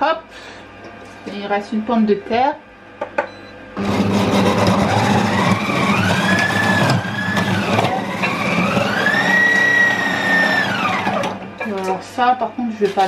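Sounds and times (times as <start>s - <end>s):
kitchen robot motor whining: 3.8s - 11.4s.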